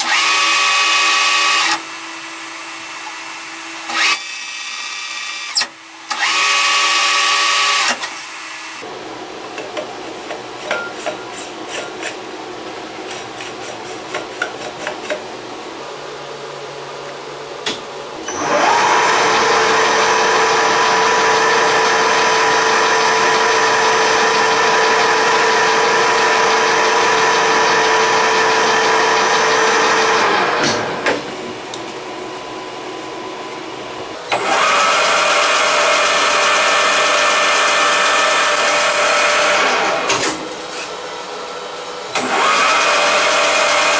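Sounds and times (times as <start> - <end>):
metal lathe motor and gear whine: 18.2 - 30.8.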